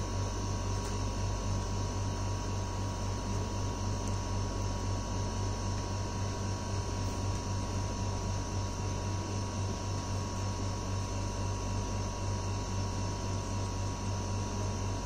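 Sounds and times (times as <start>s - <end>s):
low hum with hiss: 0.0s - 15.0s.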